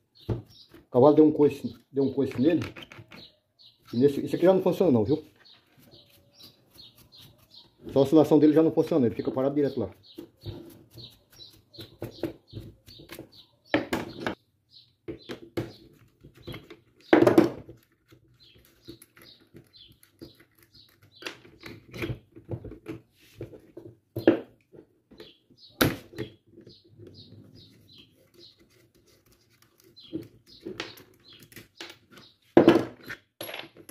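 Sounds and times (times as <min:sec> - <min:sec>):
small bird chirping: 0:00.0 - 0:22.6, 0:25.1 - 0:33.2
knocks and clicks of handling parts: 0:02.2 - 0:03.4, 0:15.0 - 0:27.2, 0:30.0 - 0:33.9.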